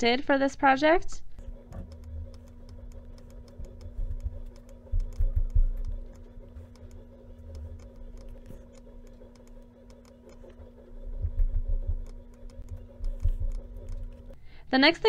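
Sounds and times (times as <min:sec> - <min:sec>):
low electrical hum: 0:00.0 - 0:15.0
mouse and keyboard clicking: 0:01.5 - 0:14.4
dull low thumps: 0:01.7 - 0:08.4, 0:10.6 - 0:14.3.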